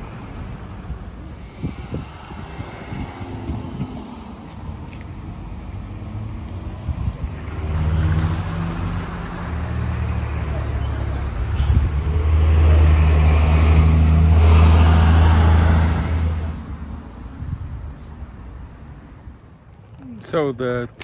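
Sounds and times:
bus diesel engine hum: 0.0 - 16.8
air brakes hissing: 10.6 - 12.1.

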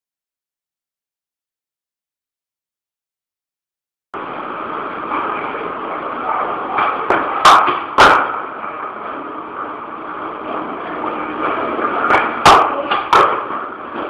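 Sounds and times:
loud sharp knocks: 7.1 - 8.4, 12.1 - 14.0.

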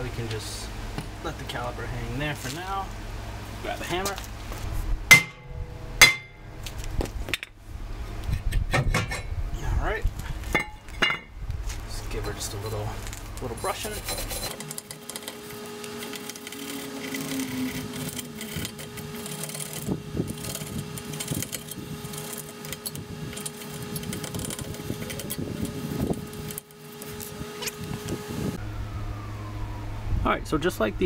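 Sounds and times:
brush scrubbing rusty metal: 12.0 - 28.5.

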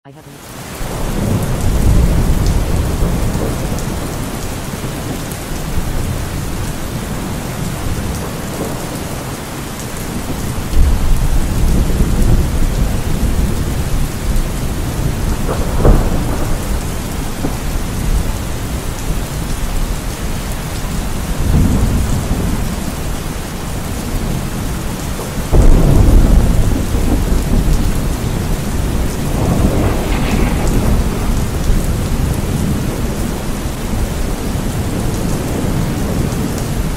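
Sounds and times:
steady rain: 0.1 - 36.9
thunder rumbling: 0.8 - 36.9
thunder crack: 0.9 - 9.5, 10.1 - 19.9, 25.5 - 36.5.

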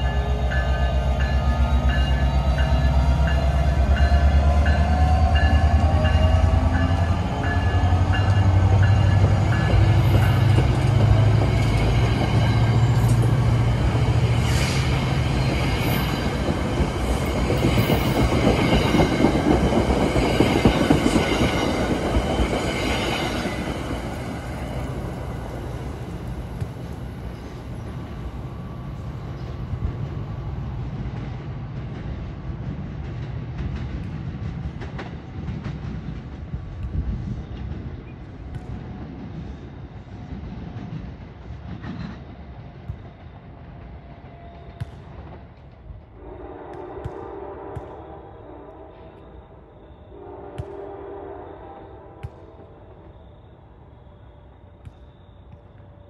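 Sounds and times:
train passing on rails: 0.0 - 56.0.

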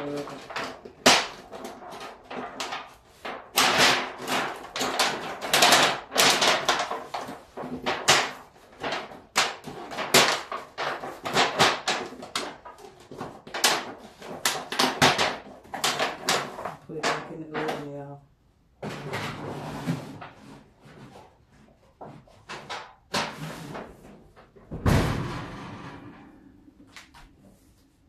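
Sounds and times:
utensils knocking and scraping: 0.0 - 18.1.

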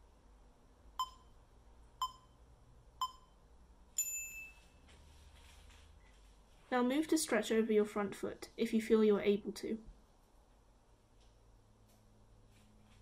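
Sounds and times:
long high timer beep: 1.0 - 1.3, 2.0 - 2.4, 3.0 - 3.4
short timer beeps: 1.0 - 1.3, 2.0 - 2.4, 3.0 - 3.4.

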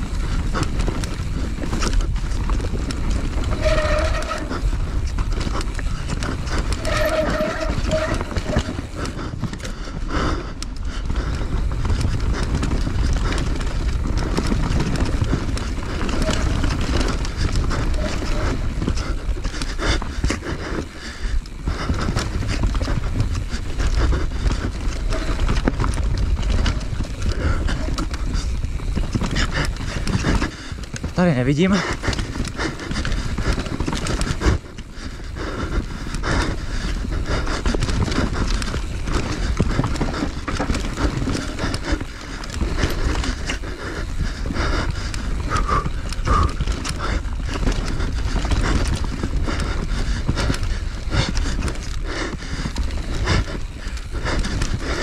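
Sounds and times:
motorcycle engine rumble: 0.0 - 31.2
knocks and rattles from bike: 0.0 - 55.0.

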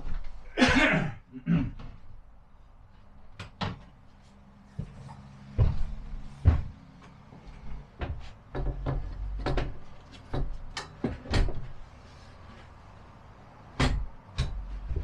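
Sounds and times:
knocks and bumps: 4.8 - 11.8, 13.8 - 15.0.

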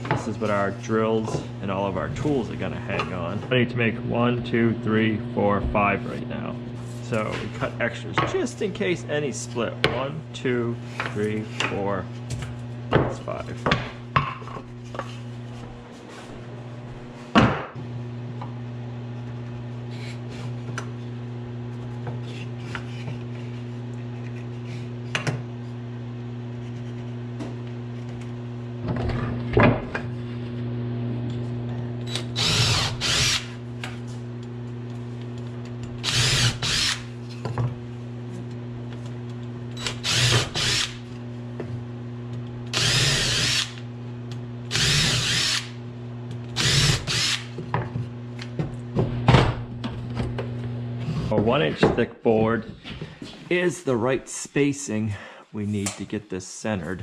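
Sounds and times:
steady low hum: 0.0 - 57.0
cordless drill drilling wood: 32.1 - 33.6, 36.0 - 37.1, 39.8 - 41.0, 42.7 - 43.8, 44.7 - 45.8, 46.6 - 47.5.

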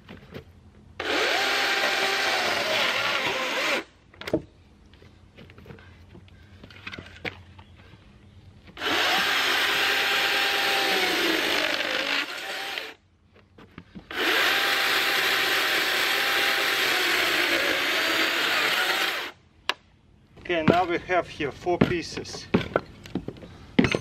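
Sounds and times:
electric chainsaw cutting timber: 1.0 - 3.9, 8.8 - 13.0, 14.1 - 19.4.

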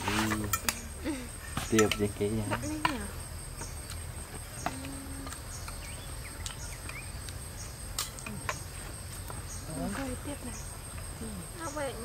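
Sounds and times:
spoons clinking on dishes: 1.7 - 2.1.

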